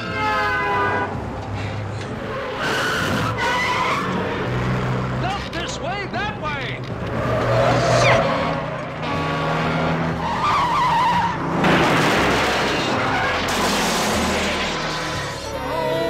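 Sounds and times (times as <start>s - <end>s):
tyres squealing and skidding: 0.0s - 5.9s, 6.6s - 16.0s
sirens of speeding emergency vehicles: 7.0s - 11.6s
metal grinding smash: 11.5s - 15.5s
loud crash: 11.6s - 15.5s.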